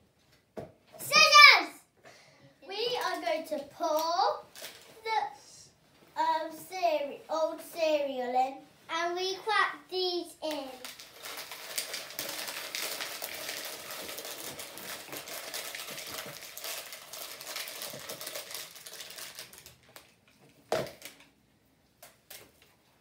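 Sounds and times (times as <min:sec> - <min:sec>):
crackers crushed into plastic bowl: 0:04.5 - 0:04.9, 0:10.5 - 0:21.3.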